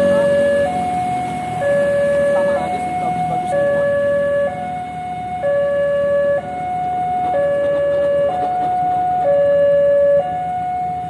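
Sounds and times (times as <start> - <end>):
level crossing two-tone alarm: 0.0 - 11.0.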